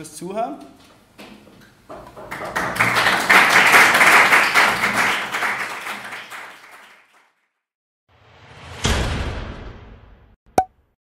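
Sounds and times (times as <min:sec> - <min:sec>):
audience applauding: 0:02.3 - 0:07.4.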